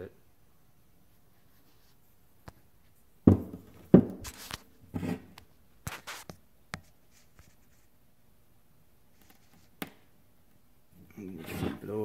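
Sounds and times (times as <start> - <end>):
metal part knocking on wooden workbench: 3.3 - 4.2.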